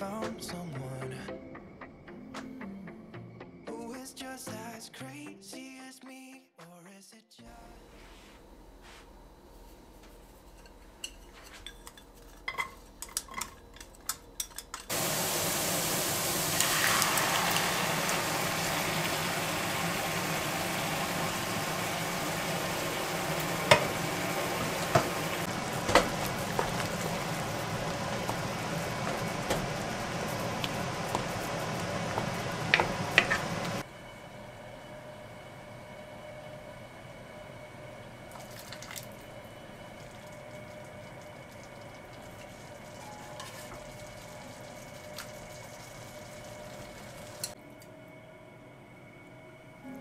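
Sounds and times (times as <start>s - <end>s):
onion and garlic sizzling in oil: 14.9s - 33.8s, 39.8s - 47.6s
wooden spatula knocking on pan: 23.7s - 24.0s, 24.9s - 33.8s.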